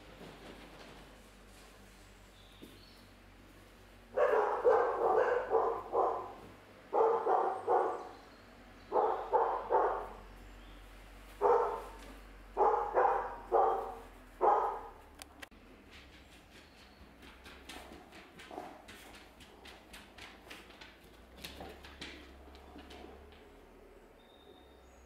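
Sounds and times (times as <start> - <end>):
dog barking: 4.1 - 8.2, 8.9 - 10.2, 11.4 - 12.0, 12.6 - 15.0.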